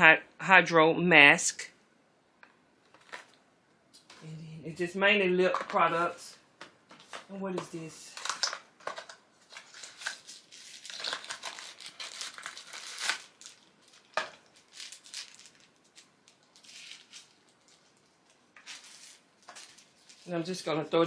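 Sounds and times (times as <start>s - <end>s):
paper packaging crinkling: 2.9s - 3.4s, 8.1s - 20.6s.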